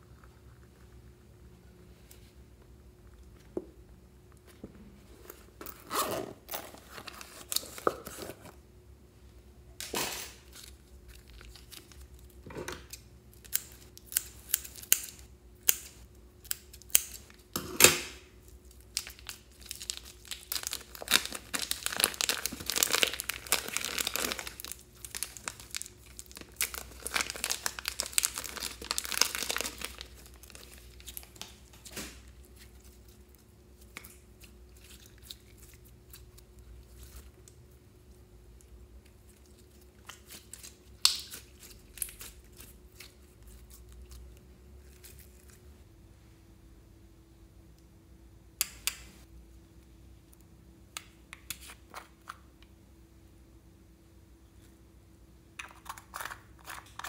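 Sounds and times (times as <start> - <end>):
plastic bag crinkling: 18.6 - 33.1.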